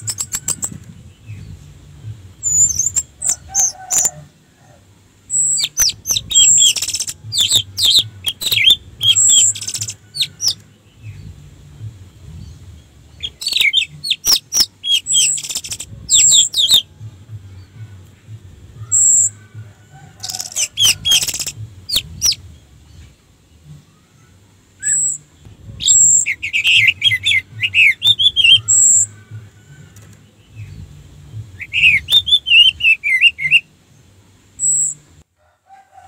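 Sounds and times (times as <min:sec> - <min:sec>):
bird whistling notes: 0:00.0 - 0:00.8, 0:31.6 - 0:33.7
harsh scratchy bird calls: 0:00.0 - 0:01.0, 0:02.4 - 0:04.3, 0:05.3 - 0:10.6, 0:13.2 - 0:16.9, 0:20.1 - 0:22.4.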